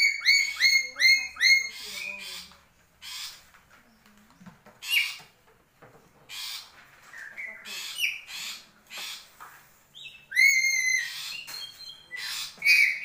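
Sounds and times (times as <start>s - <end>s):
parrot screeching: 0.0s - 3.4s, 10.3s - 11.5s.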